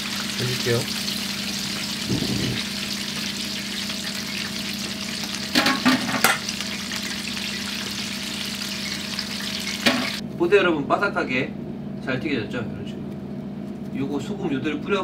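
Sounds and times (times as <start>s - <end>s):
fish sizzling in hot oil: 0.0s - 10.2s.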